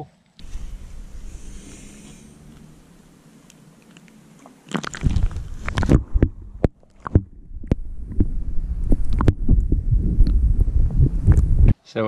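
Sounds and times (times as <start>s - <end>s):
low rumbling and sloshing: 0.4s - 3.4s, 4.7s - 11.7s
sharp underwater clicks and knocks: 3.5s - 10.7s
water splashing and gurgling: 4.4s - 9.9s.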